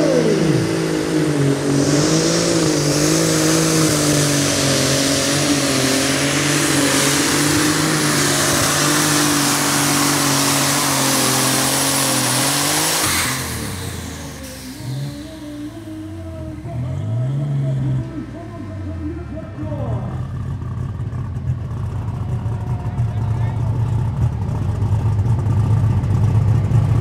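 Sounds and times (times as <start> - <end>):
diesel engine running under load: 0.0 - 27.0.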